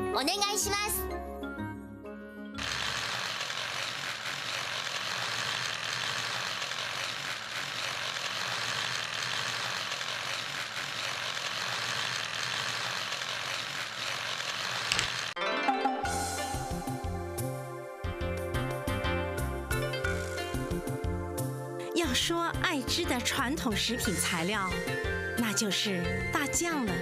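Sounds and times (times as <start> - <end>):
gear mechanism whirring: 2.6 - 15.4.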